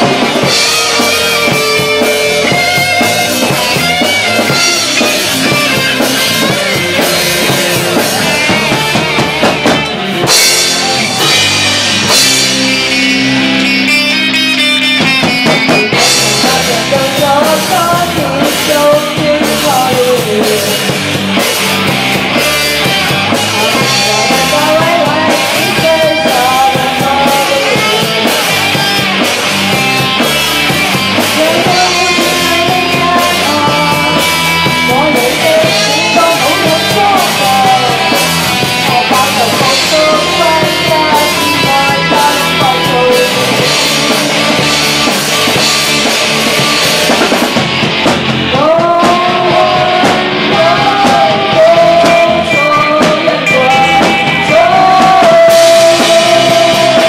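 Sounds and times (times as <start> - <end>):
bass guitar: 0.0 - 57.0
drum kit: 0.0 - 57.0
electric guitar: 0.0 - 57.0
woman singing lead vocal: 15.9 - 21.2, 23.4 - 29.2, 31.1 - 44.6, 48.5 - 57.0.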